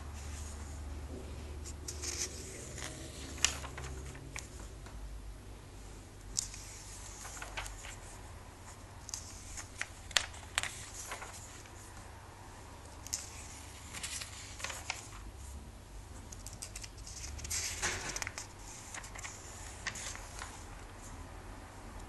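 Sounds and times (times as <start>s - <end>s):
crisp page flicks and taps: 1.6s - 4.6s, 6.3s - 8.2s, 9.0s - 11.8s, 13.0s - 15.2s, 16.3s - 20.7s
paper pages rustling: 1.6s - 4.9s, 6.3s - 12.0s, 12.9s - 15.3s, 16.3s - 21.1s.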